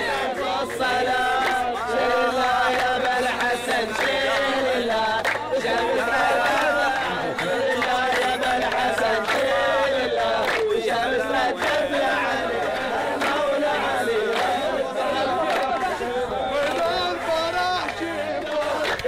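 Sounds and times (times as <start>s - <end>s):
men chanting together: 0.0s - 19.0s
rhythmic hand clapping: 0.0s - 19.0s.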